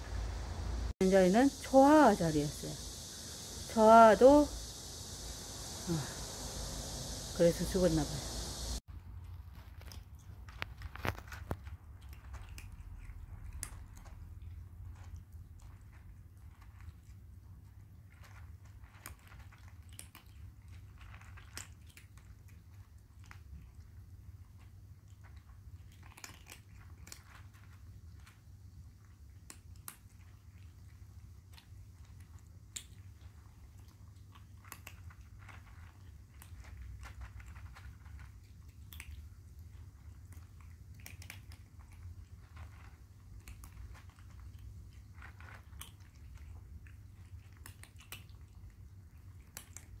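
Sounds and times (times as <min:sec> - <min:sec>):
low steady hum: 0:00.0 - 0:21.5
kittens crunching dry food: 0:01.3 - 0:50.0.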